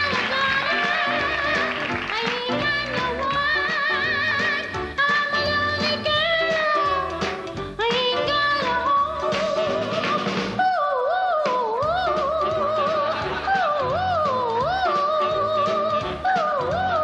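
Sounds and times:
small band playing: 0:00.0 - 0:10.8, 0:11.4 - 0:17.0
woman singing wordless notes: 0:00.0 - 0:17.0.

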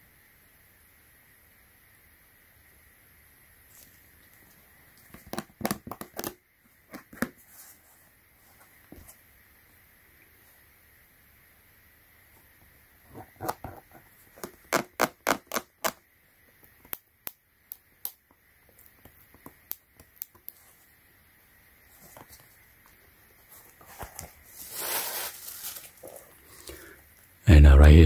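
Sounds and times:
rustling: 0:21.8 - 0:26.9.

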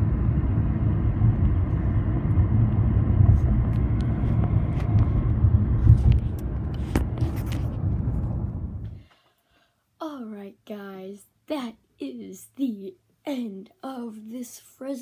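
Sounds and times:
car driving rumble: 0:00.0 - 0:09.0.

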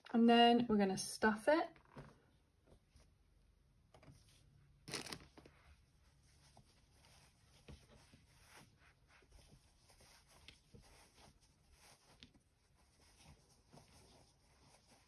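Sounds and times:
stuffing rustling: 0:04.2 - 0:15.0.

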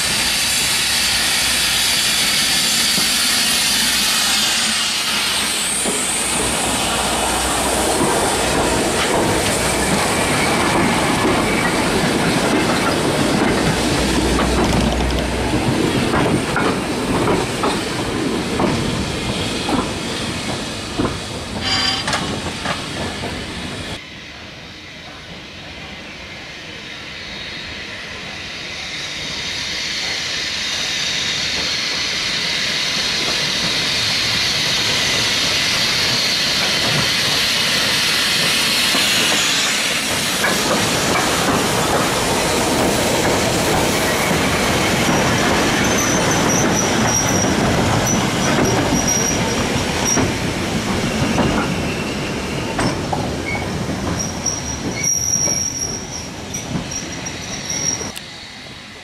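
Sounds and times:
steam hissing: 0:00.0 - 0:59.0
train wheels clattering over rail joints: 0:07.5 - 0:23.8, 0:33.1 - 0:58.2
high wheel squeal: 0:21.6 - 0:22.4, 0:43.9 - 0:50.4, 0:51.0 - 0:58.2.

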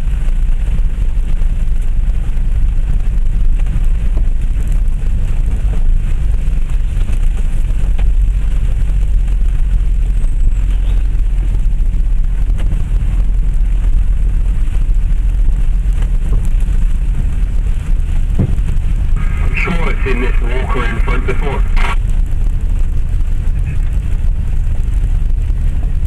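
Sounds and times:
diesel engine running low: 0:00.0 - 0:26.0
body and suspension knocks: 0:18.3 - 0:18.8.

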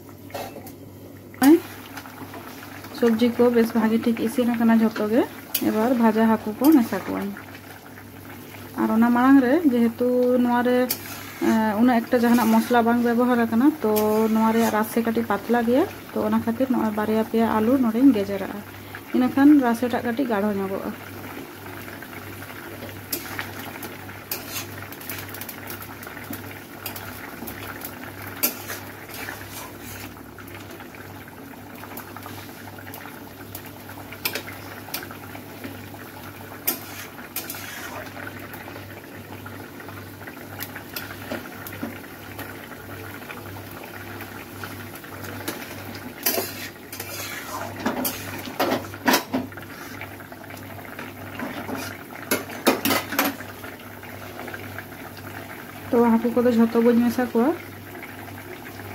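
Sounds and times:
curry bubbling: 0:01.0 - 0:58.9
spatula scraping a metal pan: 0:10.9 - 0:11.6, 0:13.9 - 0:14.9, 0:24.3 - 0:24.8, 0:28.4 - 0:30.2, 0:36.6 - 0:38.2, 0:46.2 - 0:48.8.

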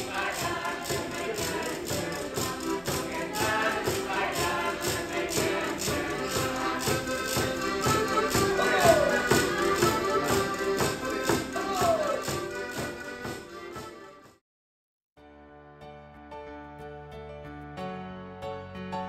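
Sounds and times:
quick percussion beat: 0:00.0 - 0:14.0
lively folk-dance music: 0:00.0 - 0:14.4.

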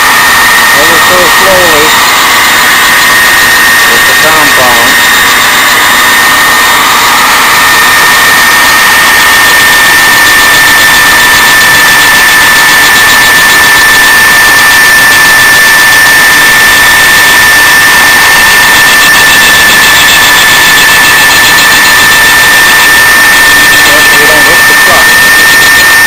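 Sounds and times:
grinder high whine: 0:00.0 - 0:26.0.

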